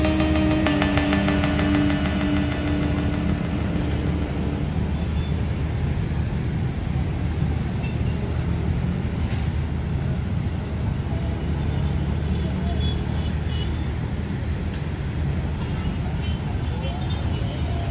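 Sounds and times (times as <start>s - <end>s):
city traffic hum: 0.0s - 17.9s.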